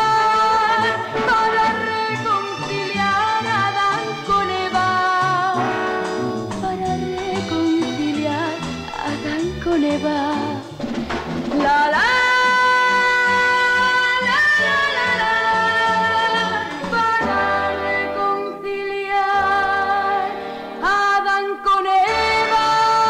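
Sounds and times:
orchestral strings: 0.5 - 10.4.

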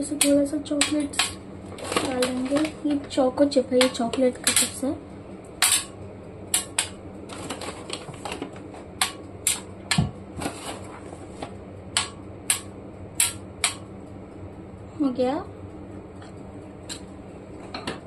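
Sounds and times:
chocolate chips ticking on metal pan: 12.0 - 13.8.

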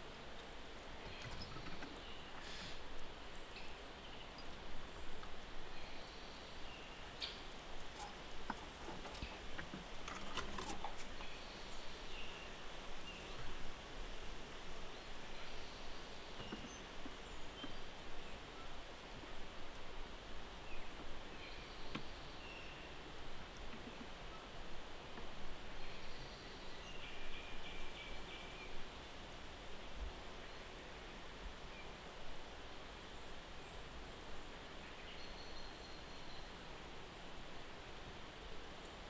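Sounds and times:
squirrels nibbling nuts: 0.3 - 11.6.

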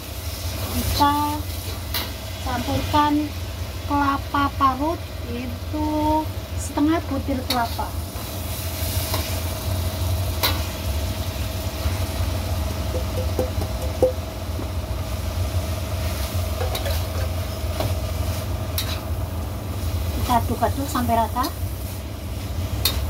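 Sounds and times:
low rumble and hum: 0.0 - 23.0
soft stirring in wok: 6.4 - 23.0
spatula clinking against wok: 12.9 - 14.2.

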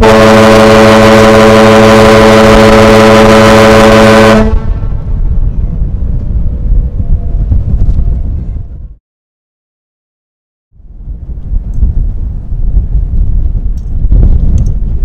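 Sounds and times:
ship whistle long blast: 0.0 - 4.8
wind rumbling on microphone: 0.0 - 9.0, 10.7 - 15.0.

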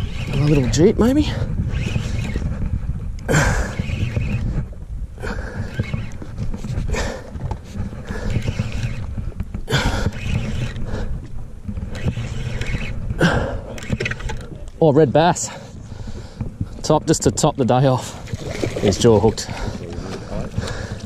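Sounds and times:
wind rumbling on microphone: 0.0 - 21.0
water washing against boat hull: 15.9 - 21.0.

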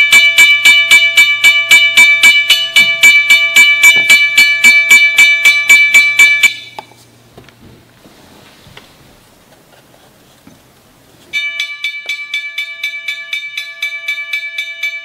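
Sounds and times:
railroad crossing bell ringing: 0.0 - 6.8, 11.3 - 15.0.

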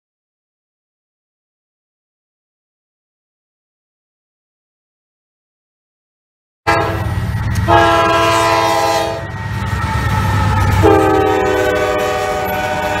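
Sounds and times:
locomotive air horn blasts: 6.7 - 9.4, 10.1 - 13.0
low rumble of rolling train: 6.7 - 13.0.

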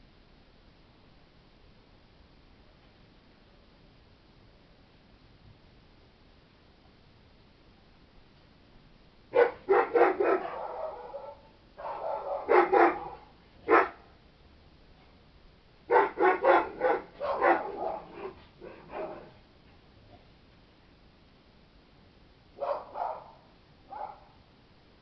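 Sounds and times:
dog barking: 9.3 - 14.0, 15.9 - 19.4, 22.6 - 24.4.

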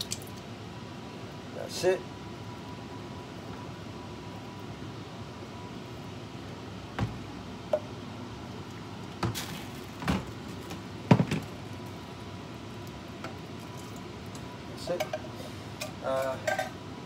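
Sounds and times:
steady low hum: 0.0 - 17.0
kitchen items knocking and clunking: 11.1 - 11.5.

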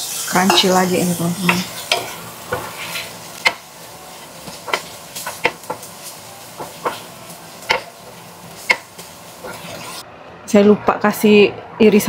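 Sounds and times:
low sizzle: 0.0 - 10.2
spatula clacking on frying pan: 3.4 - 3.7, 4.4 - 5.9, 6.6 - 8.0, 8.6 - 9.6.

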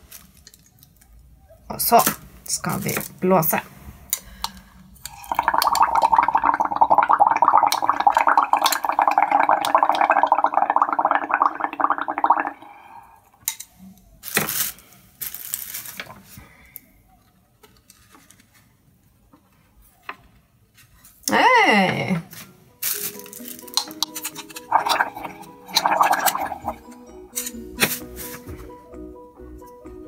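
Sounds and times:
bubbling through a straw: 5.1 - 13.3, 24.4 - 26.9.

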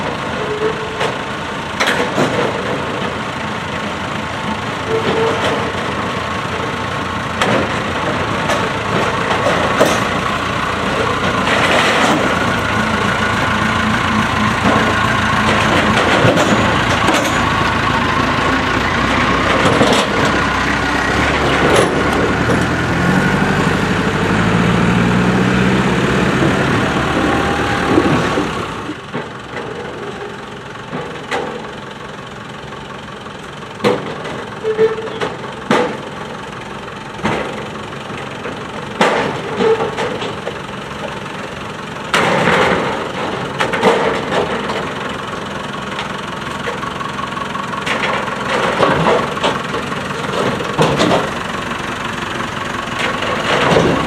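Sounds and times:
tractor engine under load: 0.0 - 54.0
metal clanks and knocks: 1.8 - 3.2, 4.9 - 6.7, 7.4 - 23.0, 33.8 - 36.4, 37.2 - 41.3, 42.1 - 45.2, 47.8 - 51.4, 53.0 - 54.0.

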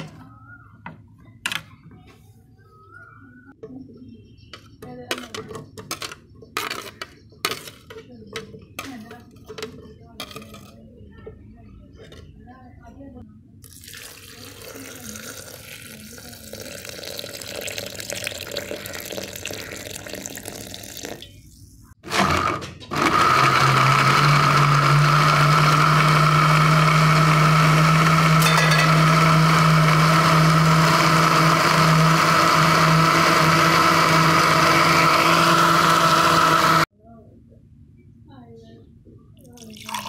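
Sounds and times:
blender motor grinding: 22.0 - 36.9.

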